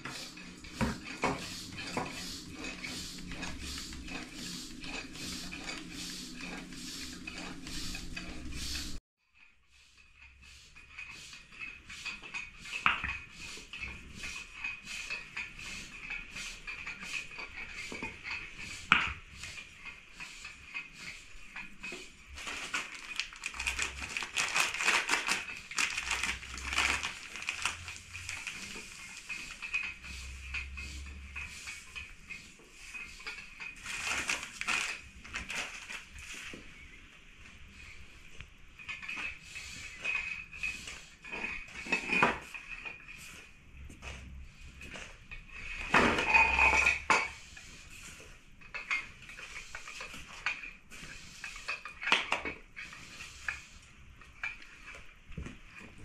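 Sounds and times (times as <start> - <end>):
hands scraping flour in basin: 0.0 - 9.0, 9.7 - 36.9, 38.9 - 56.0.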